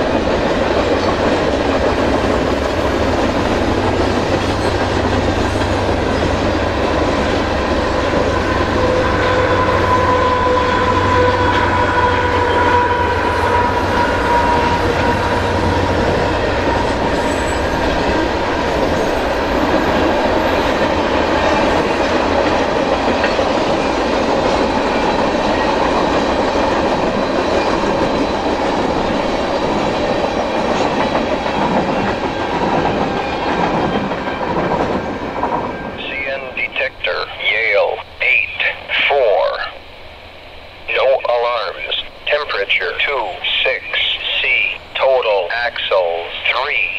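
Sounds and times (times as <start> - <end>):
freight train rumbling past: 0.0 - 46.9
high wheel squeal: 8.3 - 18.0.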